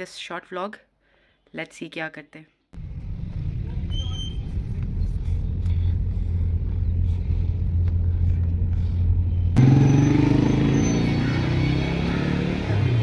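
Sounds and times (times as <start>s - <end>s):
car engine and road noise: 2.8s - 13.0s.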